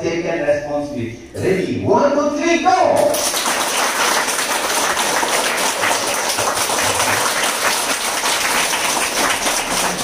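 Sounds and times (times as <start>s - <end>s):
crowd applauding: 3.1s - 10.0s.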